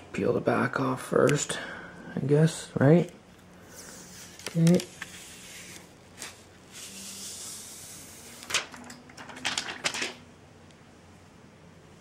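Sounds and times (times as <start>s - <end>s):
film peeling hiss: 3.4s - 10.1s.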